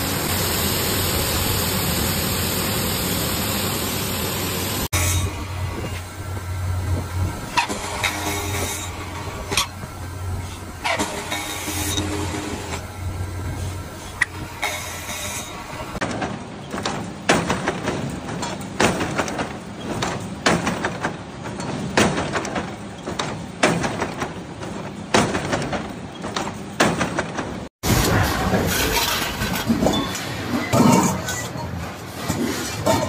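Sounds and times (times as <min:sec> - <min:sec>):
steady noisy machine: 0:00.0 - 0:16.6.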